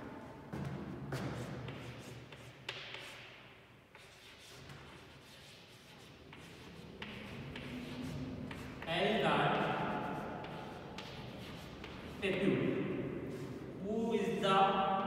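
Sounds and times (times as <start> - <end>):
chalk scratching on chalkboard: 1.1 - 8.9, 9.5 - 12.4, 13.3 - 13.6.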